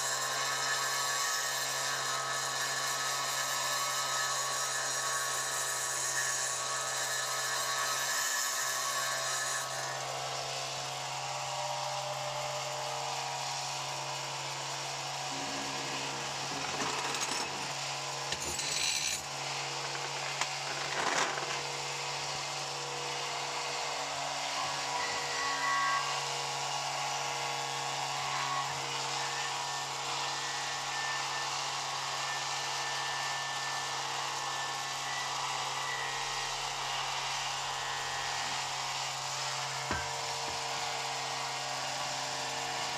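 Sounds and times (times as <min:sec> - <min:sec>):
power tool motor humming: 0:00.0 - 0:42.9.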